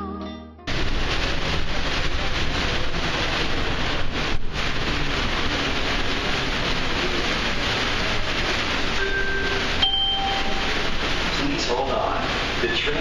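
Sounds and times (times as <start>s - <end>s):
train rumbling from inside: 0.7s - 13.0s.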